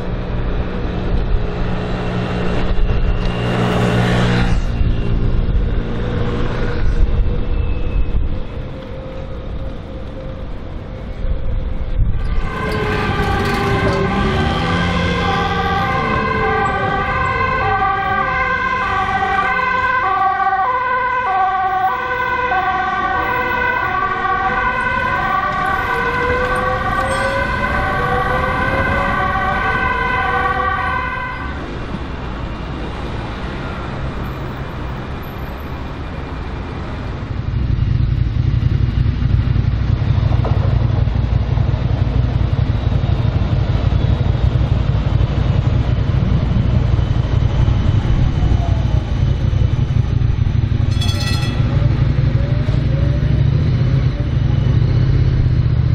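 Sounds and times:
traffic noise: 0.0 - 55.9
tram rumbling low: 0.0 - 55.9
two-tone emergency siren: 0.1 - 36.6, 41.9 - 55.9.

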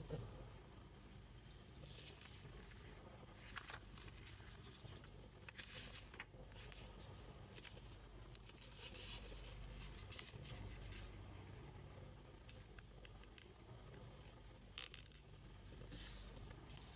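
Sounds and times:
paper rustling and creasing: 1.6 - 11.2, 14.8 - 16.9.

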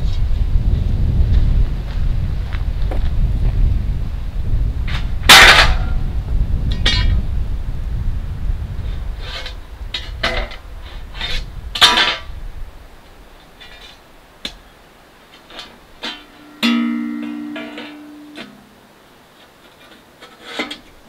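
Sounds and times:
wind rumbling on microphone: 0.0 - 16.1
loud metal clang ringing: 5.3 - 6.0, 16.1 - 18.8
metal parts scraping and clanking: 9.2 - 12.3.

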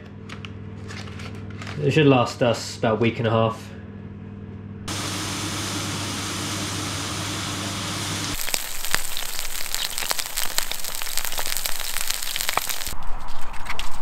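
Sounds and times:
steak sizzling in a pan: 4.9 - 13.0
crackles and pops of frying: 8.2 - 13.0.

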